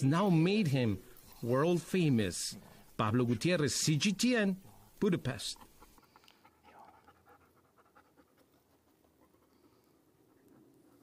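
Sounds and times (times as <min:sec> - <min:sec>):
dog panting: 0:05.5 - 0:11.0.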